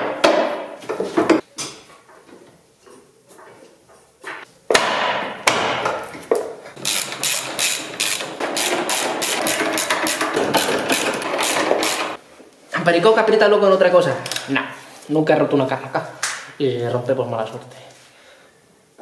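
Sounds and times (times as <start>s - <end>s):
impact wrench hammering: 4.7s - 6.1s, 6.8s - 12.2s.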